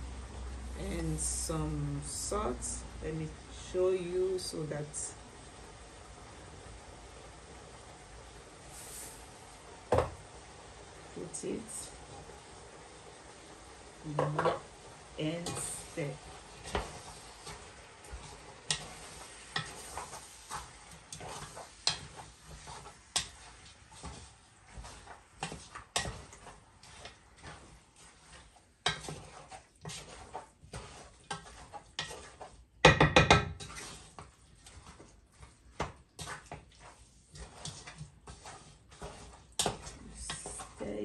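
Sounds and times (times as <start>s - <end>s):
wooden spoon stirring in a pot: 0.0s - 41.0s
spoon knocking against pot: 32.8s - 33.6s.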